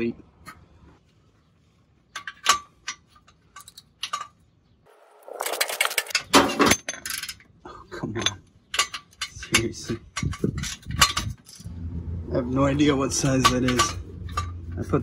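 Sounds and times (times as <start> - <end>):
metallic clatter and ratcheting: 5.2 - 7.5, 8.2 - 11.8, 13.1 - 15.0
metal hand tools clinking: 13.2 - 14.8.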